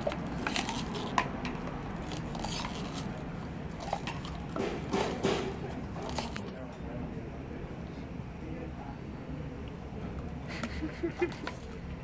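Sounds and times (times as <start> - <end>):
plastic bottle crunching: 0.0 - 6.5.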